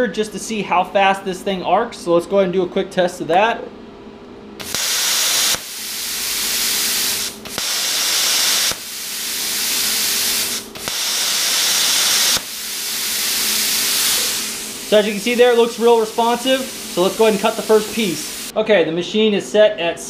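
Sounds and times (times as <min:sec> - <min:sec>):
plasma torch pilot arc hissing: 0:04.6 - 0:18.5
rush of air from torch: 0:04.6 - 0:18.5.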